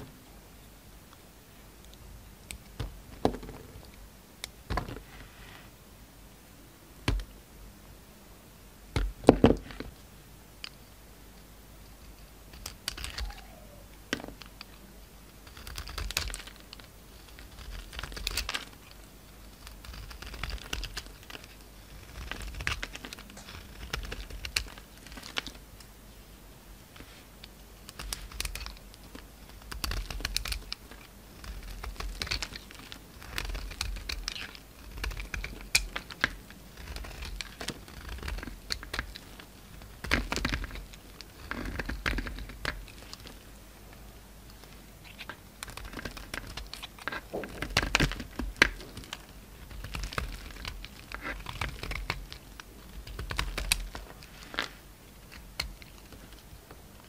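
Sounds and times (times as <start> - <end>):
knife scraping soap: 15.4 - 18.7, 19.5 - 25.3, 29.5 - 43.0.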